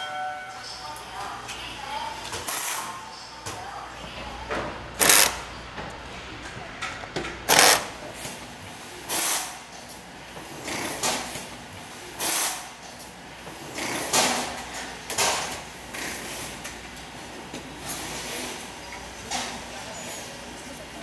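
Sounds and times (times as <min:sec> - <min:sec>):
steady background hum: 0:00.0 - 0:21.0
hissing clattering bursts: 0:09.0 - 0:11.5, 0:12.1 - 0:14.7.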